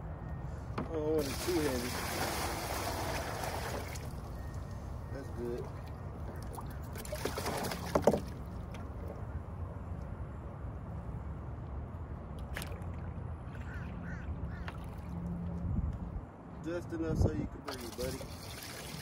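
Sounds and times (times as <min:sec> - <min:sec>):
water pouring from a bucket: 0:01.2 - 0:04.3, 0:06.9 - 0:08.3, 0:17.7 - 0:19.0
quacking bird calls: 0:13.5 - 0:14.9.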